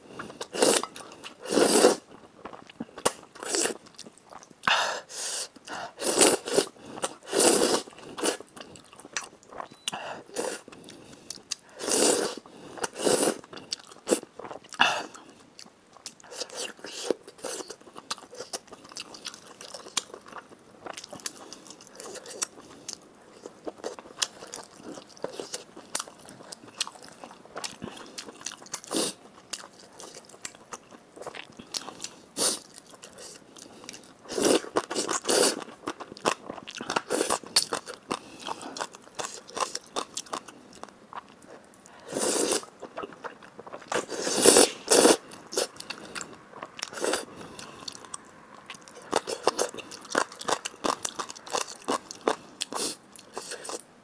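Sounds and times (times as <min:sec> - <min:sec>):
slurping noodles: 0:00.5 - 0:02.0, 0:05.2 - 0:08.4, 0:11.8 - 0:13.4, 0:42.1 - 0:42.7, 0:44.0 - 0:45.7.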